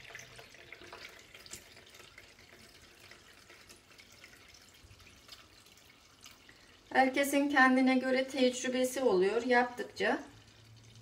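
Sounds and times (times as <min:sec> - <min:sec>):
small drips: 0:00.0 - 0:06.9, 0:10.0 - 0:11.0
liquid trickling: 0:00.0 - 0:07.3, 0:09.8 - 0:11.0.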